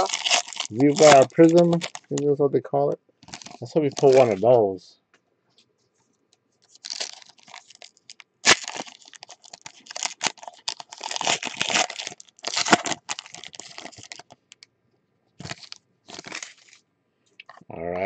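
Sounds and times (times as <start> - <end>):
foil wrapper crinkling and tearing: 0.0 - 2.3, 3.2 - 4.6, 6.7 - 14.6, 15.4 - 16.8.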